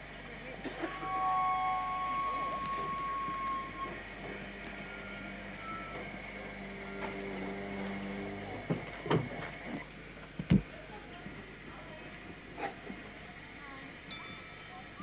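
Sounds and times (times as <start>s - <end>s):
low steady hum: 0.0s - 15.0s
camcorder zoom motor whine: 0.9s - 9.9s.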